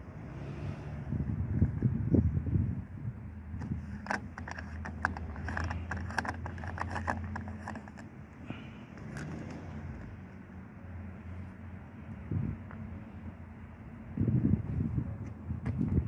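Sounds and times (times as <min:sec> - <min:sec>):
plastic cap clicking as it turns: 0:03.6 - 0:08.1.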